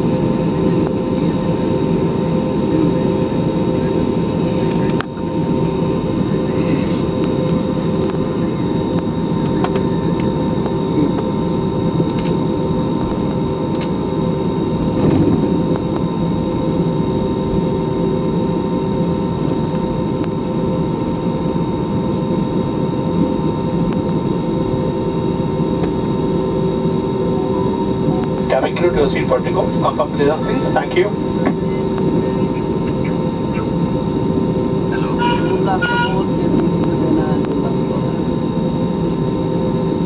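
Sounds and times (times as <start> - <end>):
airliner cabin engine hum: 0.0 - 40.0
constant engine whine: 0.0 - 40.0.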